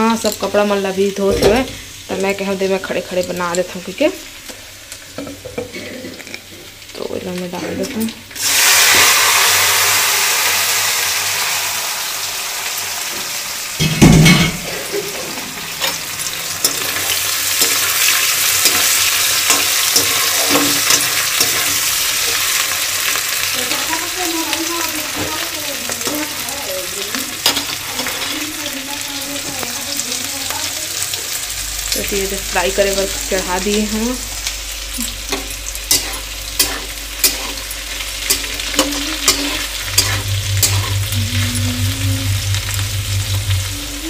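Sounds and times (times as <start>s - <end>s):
food sizzling in hot oil: 0.0s - 44.0s
metal skimmer scraping: 38.3s - 44.0s.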